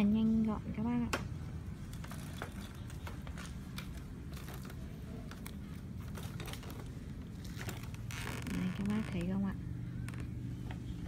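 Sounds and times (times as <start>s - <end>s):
low background rumble: 0.0s - 11.0s
wheelchair frame clicking and rattling: 1.8s - 9.4s.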